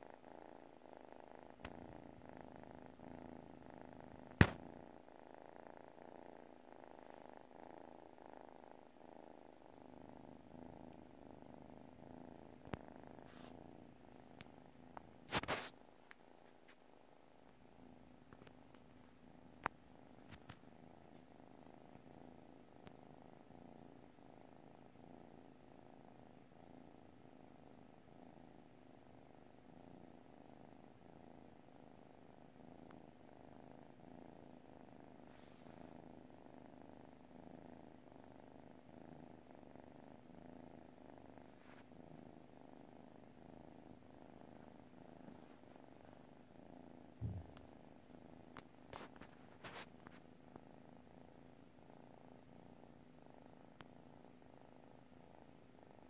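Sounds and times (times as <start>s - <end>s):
kitten purring: 0.0s - 56.0s
soft thump: 47.2s - 47.7s.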